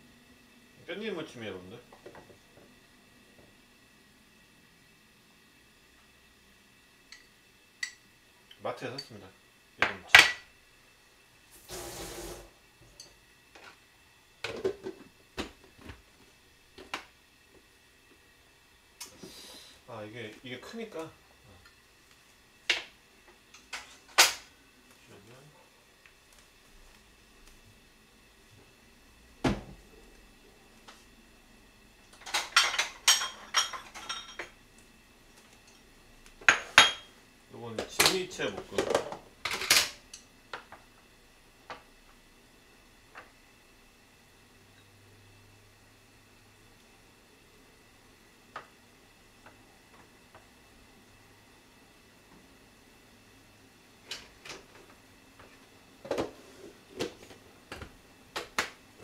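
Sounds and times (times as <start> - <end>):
dishes and utensils clinking: 32.2 - 34.6, 36.4 - 37.1.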